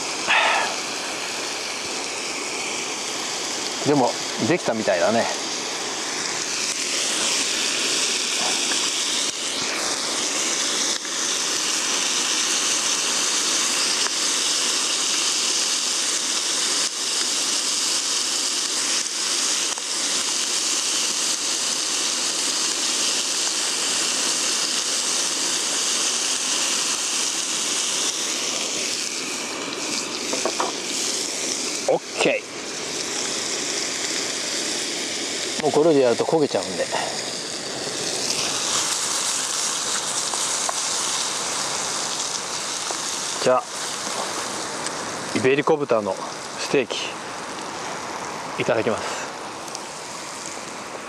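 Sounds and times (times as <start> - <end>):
gas burner hissing: 0.0 - 51.0
meat sizzling in a pan: 0.0 - 51.0.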